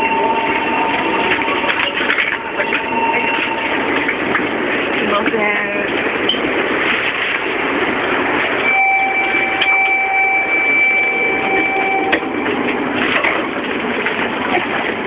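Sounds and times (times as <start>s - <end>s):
two-pitch electronic tone: 0.0s - 4.1s, 8.6s - 12.9s
steady background noise: 0.0s - 15.0s.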